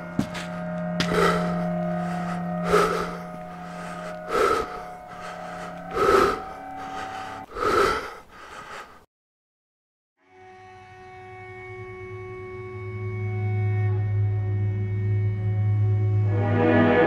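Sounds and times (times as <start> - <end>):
low drone: 0.0 - 8.1.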